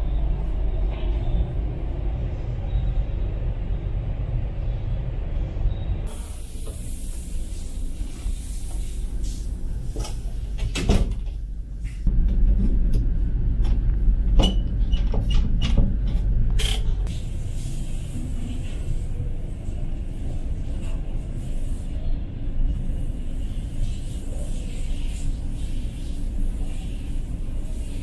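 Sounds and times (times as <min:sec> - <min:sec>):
low engine drone: 0:00.0 - 0:28.0.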